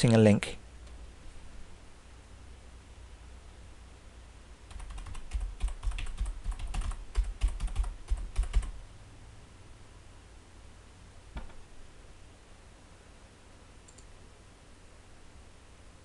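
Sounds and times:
computer keyboard typing: 4.7s - 8.8s.

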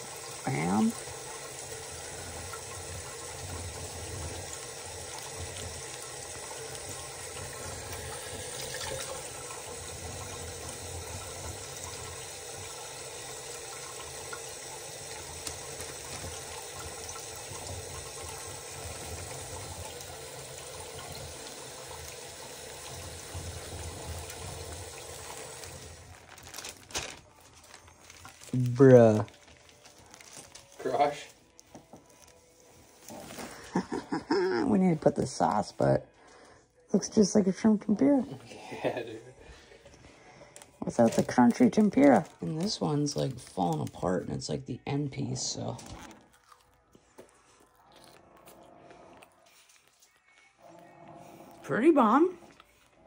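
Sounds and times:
tap water running into steel sink: 0.0s - 26.1s.

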